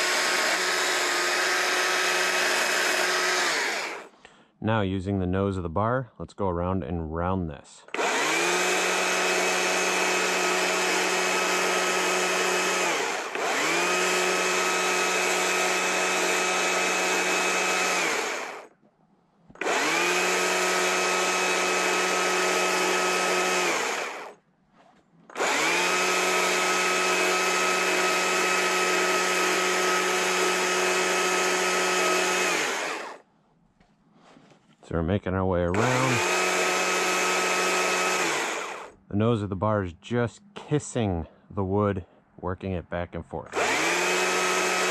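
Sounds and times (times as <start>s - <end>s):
chainsaw cutting branch: 0.0s - 4.1s, 8.0s - 18.7s, 19.6s - 24.4s, 25.3s - 33.2s, 35.8s - 39.0s, 43.6s - 44.9s.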